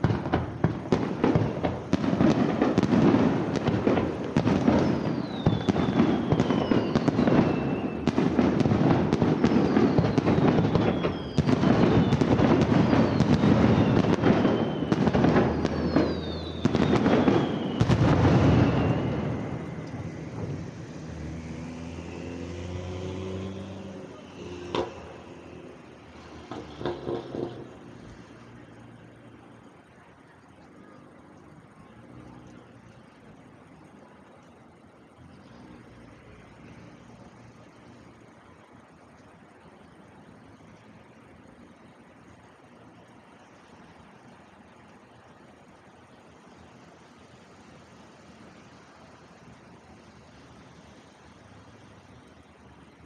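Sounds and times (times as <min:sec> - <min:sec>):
fireworks bursts and bangs: 0:00.0 - 0:21.4, 0:23.8 - 0:30.0
falling whistling fireworks: 0:00.0 - 0:53.0
sharp crack: 0:23.8 - 0:25.2, 0:26.2 - 0:27.8.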